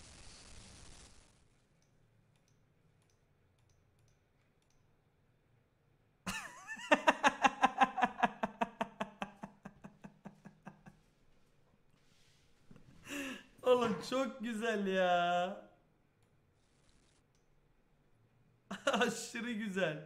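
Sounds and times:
man giggling: 6.3 - 11.1, 18.7 - 19.7.

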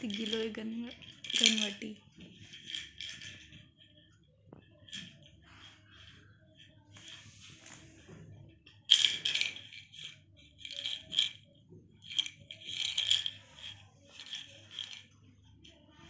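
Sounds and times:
pills rattling in plastic bottle: 0.0 - 4.0, 8.8 - 11.4, 12.0 - 15.1.

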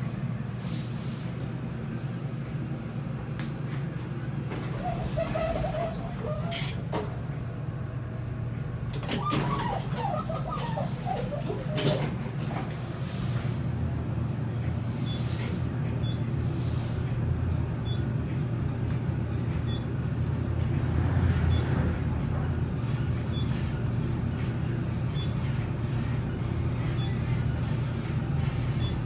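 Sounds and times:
elevator doors sliding closed: 3.8 - 8.0, 8.8 - 13.7
elevator humming: 3.8 - 15.2.

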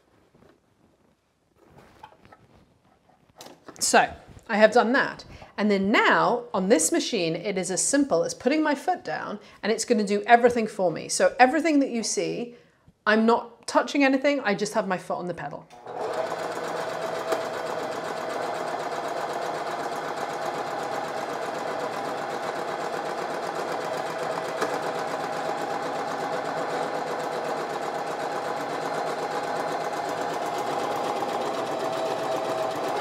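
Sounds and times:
sewing machine stitching: 15.7 - 33.0.

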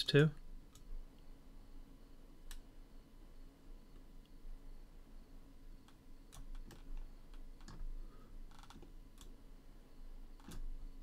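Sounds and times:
keyboard and mouse clicking: 5.8 - 7.9, 8.7 - 9.3, 10.4 - 10.7.

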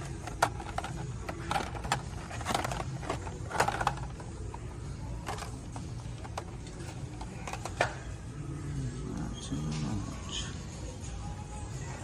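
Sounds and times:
plastic packaging clicks and crinkles: 0.0 - 4.3.

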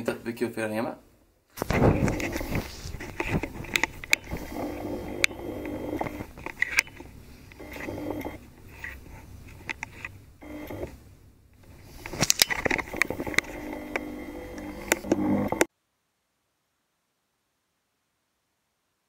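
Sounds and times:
scraping: 1.6 - 10.9.

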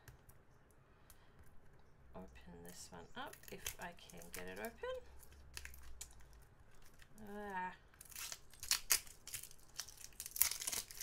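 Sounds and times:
plastic wrap crinkling and tearing: 3.2 - 11.0.

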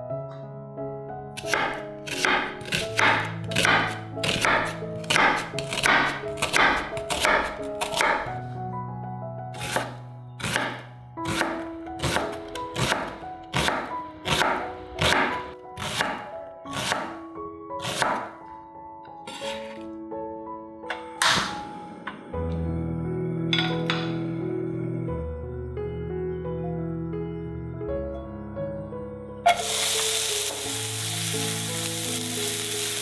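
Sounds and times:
background music: 0.0 - 33.0
knife cutting on board: 1.4 - 8.3, 19.3 - 19.9.

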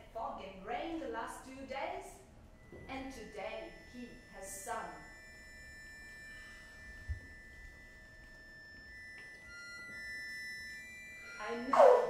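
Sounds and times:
accordion playing held notes: 5.9 - 12.0.

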